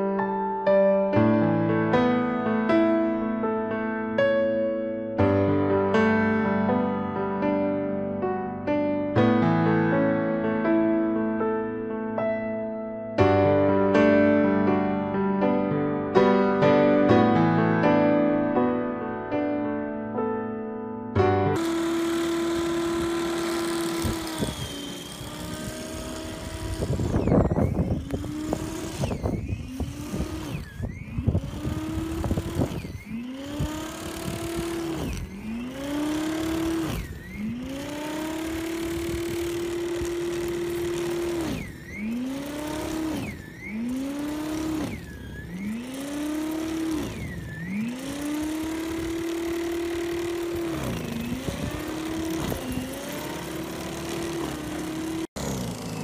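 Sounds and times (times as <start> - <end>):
electric snow thrower motor whining: 21.5 - 56.0.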